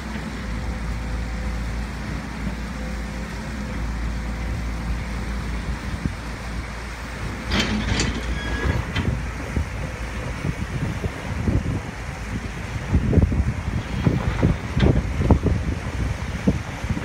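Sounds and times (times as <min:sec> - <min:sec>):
wind on microphone: 0:05.4 - 0:17.0.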